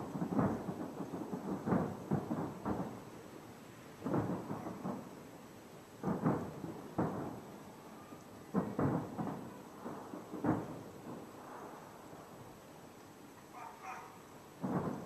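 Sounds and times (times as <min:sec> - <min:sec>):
distant firework booms: 0:00.0 - 0:03.2, 0:04.0 - 0:05.3, 0:06.0 - 0:12.4, 0:14.6 - 0:15.0.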